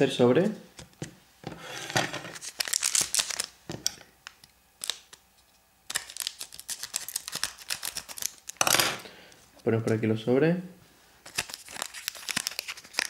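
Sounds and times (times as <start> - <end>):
foil wrapper crinkling: 2.3 - 3.6, 4.2 - 5.2, 5.9 - 8.6, 11.2 - 13.0.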